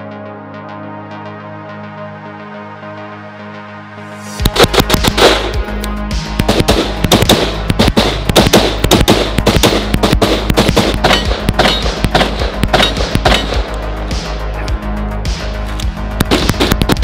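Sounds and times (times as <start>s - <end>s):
background music with bass: 0.0s - 17.0s
rapid rifle gunfire: 4.5s - 5.6s, 6.4s - 13.7s, 16.2s - 17.0s.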